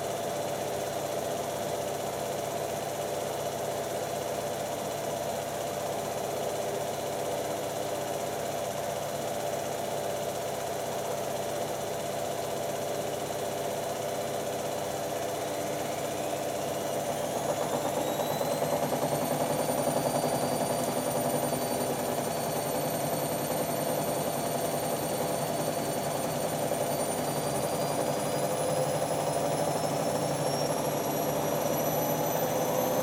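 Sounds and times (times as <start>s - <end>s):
washing machines spinning: 0.0s - 33.0s
motor whine rising: 15.3s - 33.0s.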